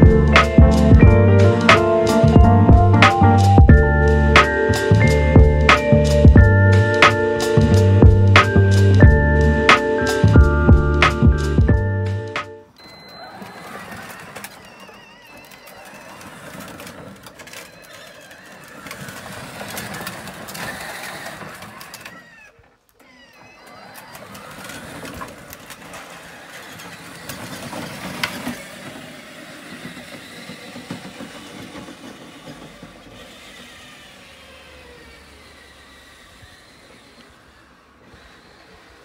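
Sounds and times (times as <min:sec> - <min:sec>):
electric motors whining: 0:00.0 - 0:39.0
plastic wheels rumbling on paving: 0:12.8 - 0:39.0.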